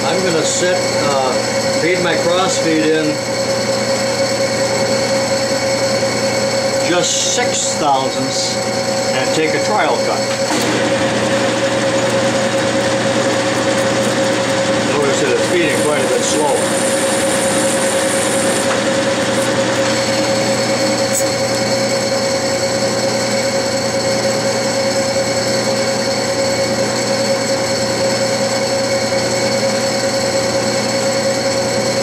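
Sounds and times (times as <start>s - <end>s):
metal lathe whining: 0.0s - 32.0s
high hiss of cutting: 15.2s - 18.7s.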